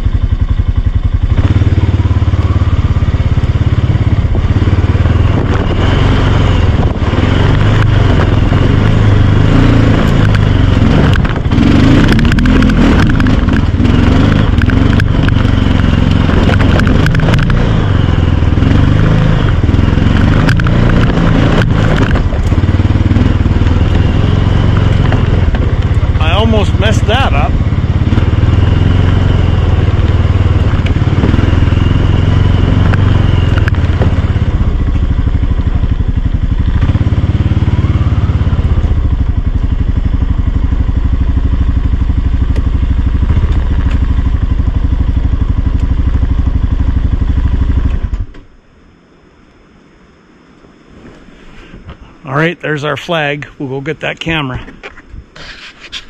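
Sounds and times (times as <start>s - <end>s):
atv engine running: 0.0s - 56.0s
twigs crackling under tyres: 10.0s - 34.4s.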